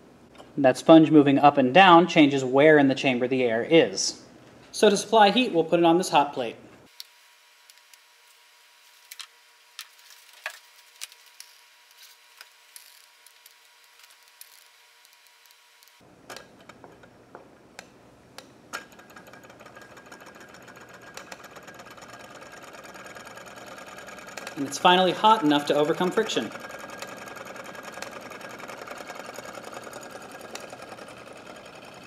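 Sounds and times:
small engine pistons rattling: 18.8 - 32.0.

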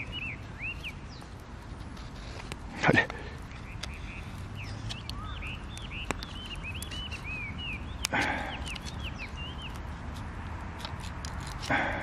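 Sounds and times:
sharp clicks: 2.4 - 11.8.

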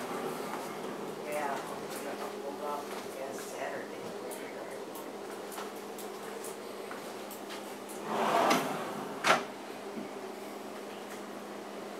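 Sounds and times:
drawer sliding: 8.0 - 9.5.

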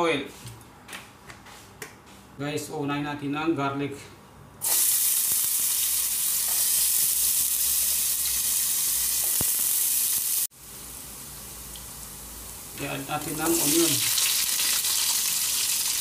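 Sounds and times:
garlic sizzling in oil: 4.6 - 16.0.

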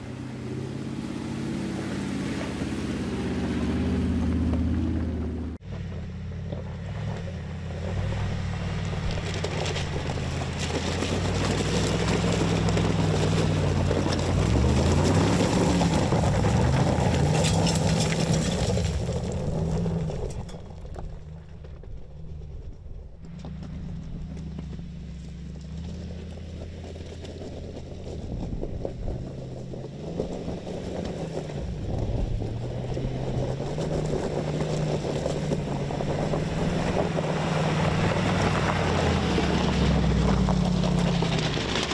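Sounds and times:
car engine revving at low revs: 0.0 - 21.2, 22.0 - 41.9
tyres on stones: 8.8 - 22.0.

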